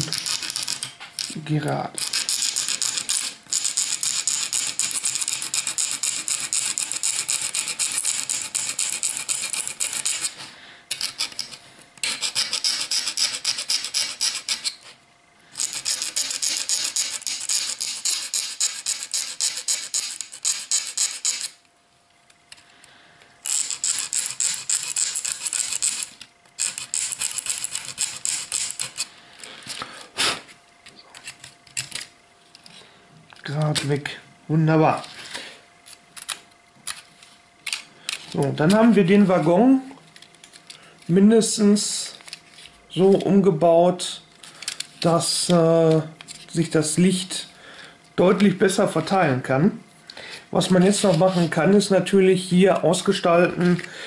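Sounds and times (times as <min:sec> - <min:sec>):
hand file rasping on plastic: 0:02.0 - 0:10.4, 0:12.0 - 0:15.0, 0:15.6 - 0:21.5, 0:23.5 - 0:29.1.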